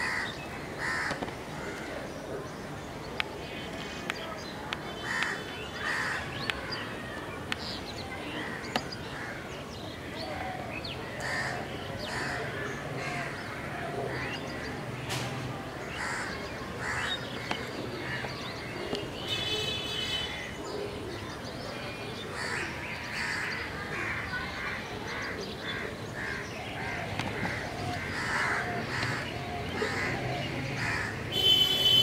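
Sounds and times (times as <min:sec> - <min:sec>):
crows cawing: 0:00.0 - 0:02.0, 0:05.0 - 0:06.3, 0:11.2 - 0:14.3, 0:15.9 - 0:18.4, 0:22.4 - 0:31.5.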